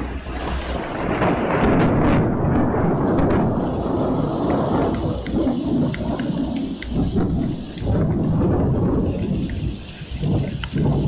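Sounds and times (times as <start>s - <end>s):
steady rain: 0.0s - 11.0s
thunder rumbling: 0.0s - 11.0s
drops ticking: 4.4s - 11.0s.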